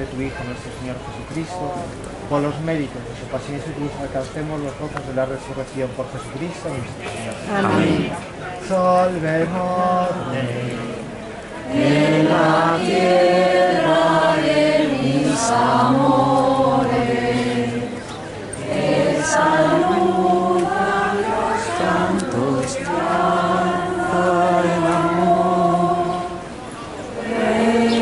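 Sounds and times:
congregation singing a hymn: 0:07.5 - 0:28.0.

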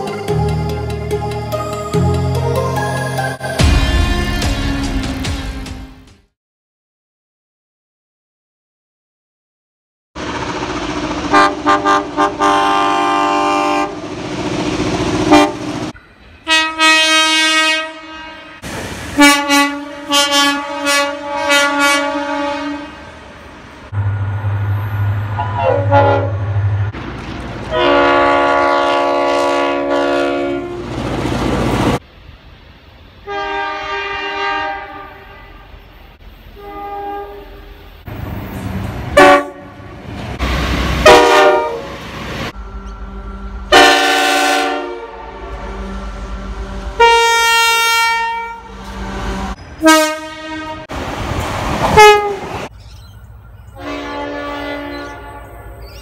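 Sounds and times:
diesel locomotive engine: 0:00.0 - 0:06.0, 0:10.2 - 0:56.0
train horn blasts: 0:11.3 - 0:14.0, 0:15.2 - 0:15.7, 0:16.5 - 0:18.6, 0:19.2 - 0:23.1, 0:25.3 - 0:26.6, 0:27.7 - 0:30.9, 0:33.2 - 0:35.8, 0:36.6 - 0:37.9, 0:39.1 - 0:40.0, 0:41.0 - 0:50.9, 0:51.9 - 0:52.5, 0:53.8 - 0:55.8.

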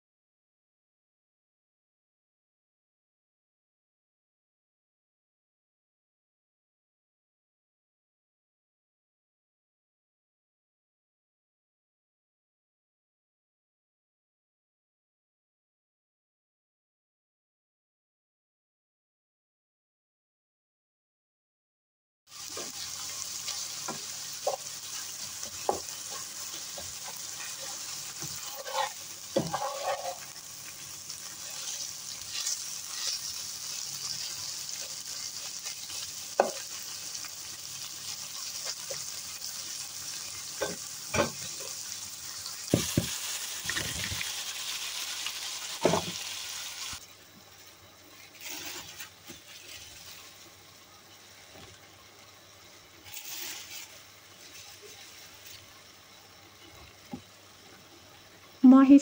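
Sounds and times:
meat sizzling in a pan: 0:22.3 - 0:59.0
spatula scraping a pan: 0:22.4 - 0:36.9, 0:48.2 - 0:50.2, 0:53.0 - 0:55.6.

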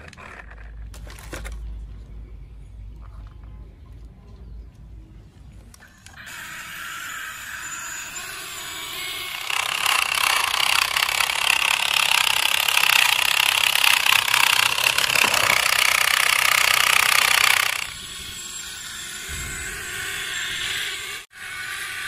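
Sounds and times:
toy motor buzzing rattle: 0:05.9 - 0:22.0.

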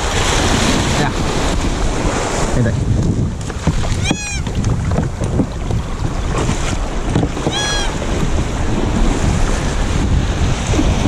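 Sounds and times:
surf washing on beach: 0:00.0 - 0:11.0
wind buffeting microphone: 0:00.0 - 0:11.0
high-pitched calls: 0:04.0 - 0:04.4, 0:07.5 - 0:08.0.

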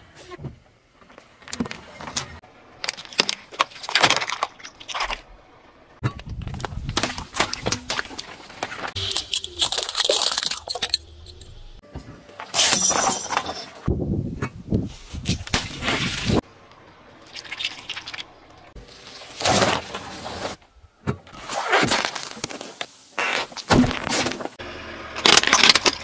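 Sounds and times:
objects crunching under a tyre: 0:06.1 - 0:11.4, 0:15.2 - 0:26.0.

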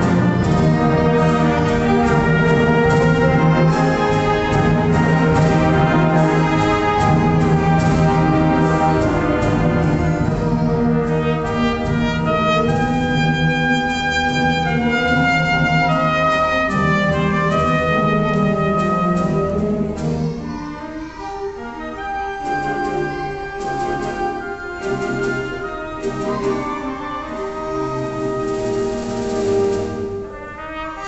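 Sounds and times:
solo trumpet: 0:00.0 - 0:20.0, 0:21.6 - 0:31.0
wind band playing: 0:00.0 - 0:31.0.

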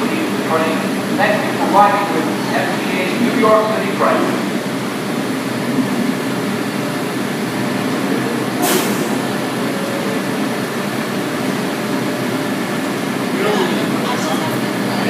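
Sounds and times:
subway train humming: 0:00.0 - 0:15.0
brief hiss: 0:08.6 - 0:09.2.

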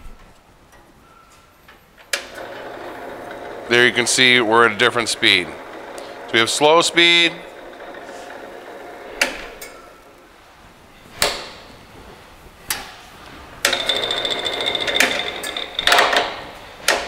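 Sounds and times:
bandsaw rattling with high whine: 0:02.2 - 0:10.2, 0:13.6 - 0:16.5.

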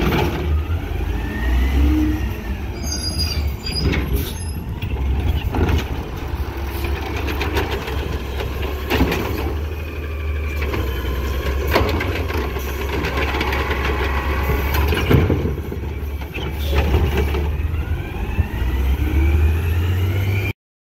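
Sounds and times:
rising whine: 0:17.5 - 0:20.5.

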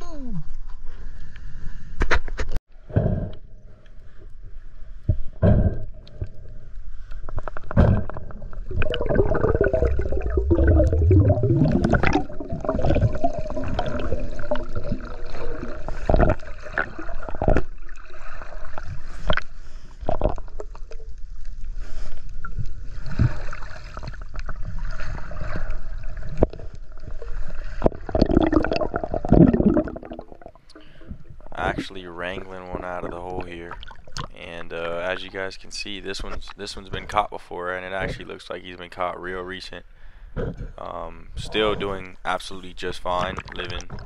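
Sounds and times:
underwater gurgling and sloshing: 0:02.7 - 0:38.4, 0:40.3 - 0:44.0
bubbly gurgling: 0:07.5 - 0:19.4, 0:23.2 - 0:34.4, 0:43.1 - 0:44.0.

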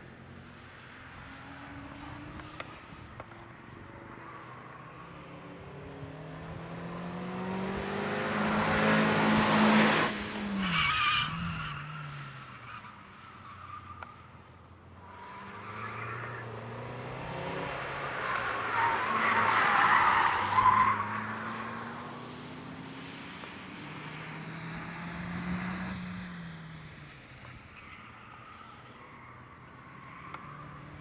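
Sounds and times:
car engine revving: 0:05.1 - 0:11.0.

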